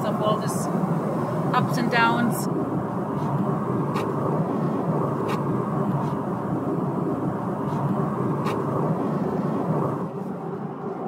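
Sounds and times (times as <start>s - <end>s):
airplane cabin drone: 0.0s - 11.0s.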